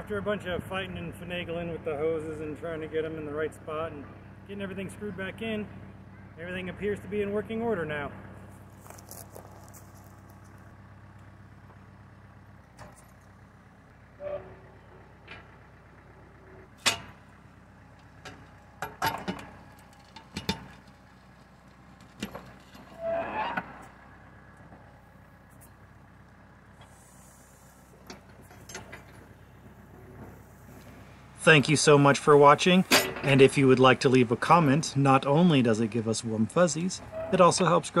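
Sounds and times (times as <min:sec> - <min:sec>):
backhoe scraping: 0:00.0 - 0:38.0
diesel tractor engine running: 0:00.0 - 0:38.0
backhoe bucket clanks: 0:12.6 - 0:21.1, 0:27.8 - 0:31.0, 0:32.2 - 0:33.8, 0:37.0 - 0:37.7.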